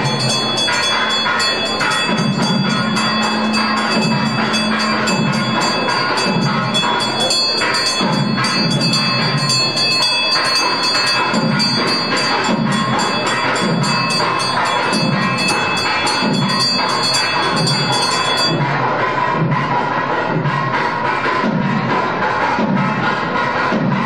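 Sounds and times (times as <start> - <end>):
music with bell ringing: 0.0 - 19.4.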